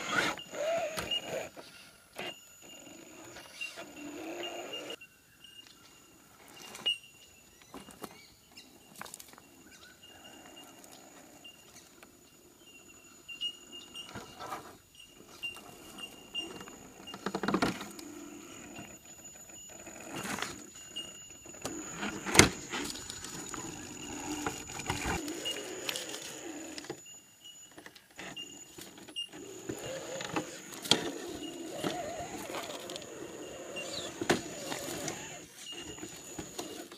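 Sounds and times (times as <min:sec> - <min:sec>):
electric motor high whine: 0:00.0 - 0:05.0, 0:15.4 - 0:27.2, 0:28.2 - 0:36.9.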